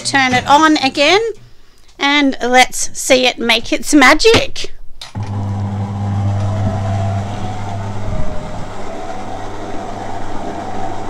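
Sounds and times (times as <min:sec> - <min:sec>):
stand mixer motor humming: 0:05.2 - 0:11.0.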